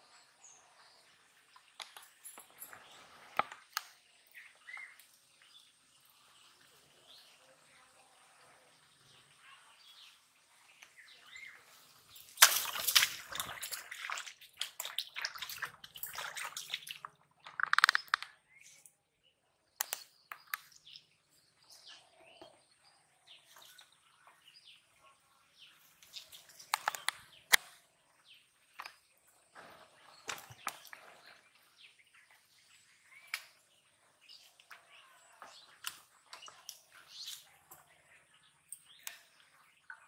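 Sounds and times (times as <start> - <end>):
birds chirping faintly: 0.0 - 40.0
fish splashing and thrashing: 12.2 - 18.2.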